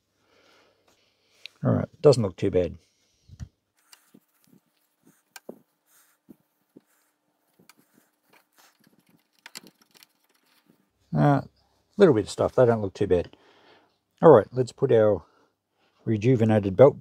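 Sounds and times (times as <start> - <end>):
tissue rubbing plastic clicks: 3.3 - 11.0.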